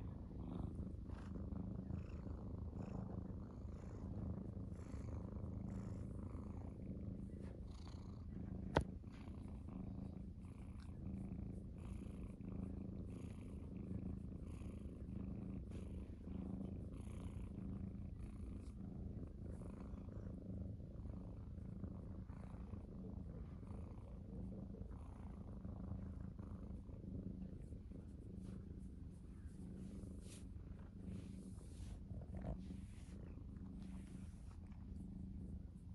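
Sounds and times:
cat purring: 0.0 - 35.9.

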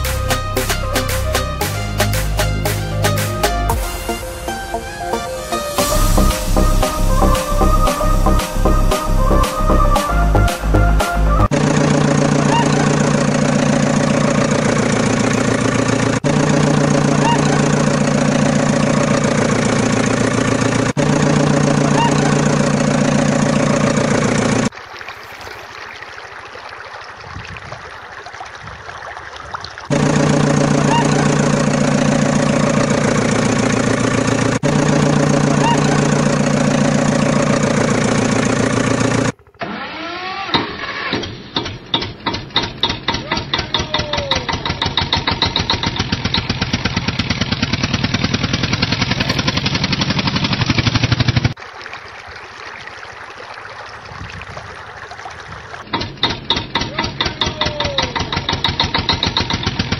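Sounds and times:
diesel engine idling: 0.0 - 24.7, 29.9 - 51.6, 55.9 - 59.9
engine cranking and firing: 11.4 - 24.7, 29.9 - 51.6, 55.8 - 59.9.

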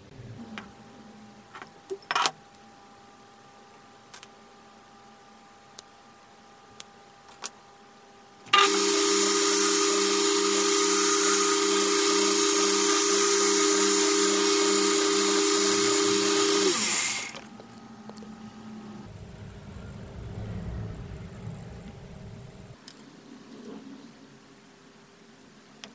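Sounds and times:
electric power tool running: 8.6 - 17.4.

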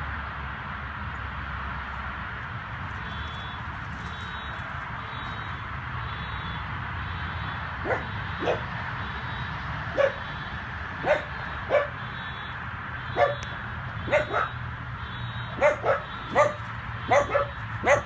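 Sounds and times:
puppy yipping: 10.0 - 10.2, 13.2 - 13.4, 14.1 - 14.6, 15.6 - 18.0.

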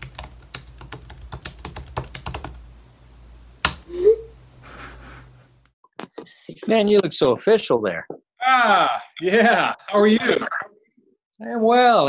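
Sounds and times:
typing on a computer keyboard: 0.0 - 2.6.

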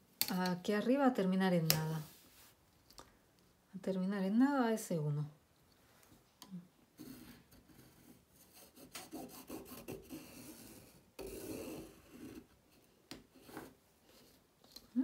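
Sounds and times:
pencil scratching on fabric: 7.0 - 14.4.

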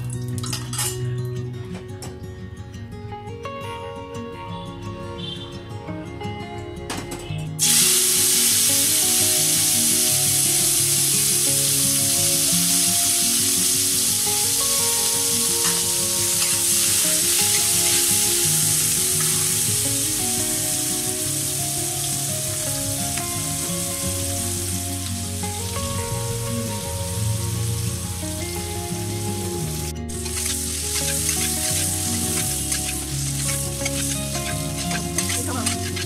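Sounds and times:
soft background music: 0.0 - 36.0
onions sizzling in hot oil: 7.6 - 36.0
spatula stirring in wok: 30.1 - 36.0.

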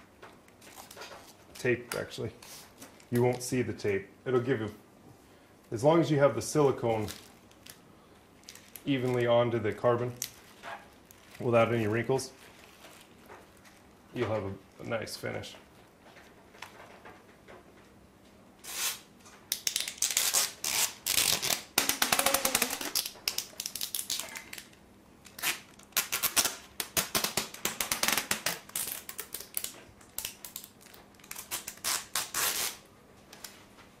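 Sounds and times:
tape ripping off roll: 18.6 - 32.9.

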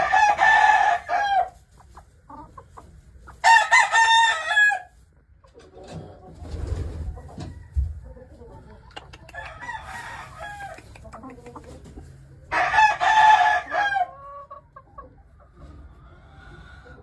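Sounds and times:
hens clucking: 0.0 - 17.0
rooster crowing: 3.4 - 4.9, 9.3 - 11.0, 12.5 - 14.1.

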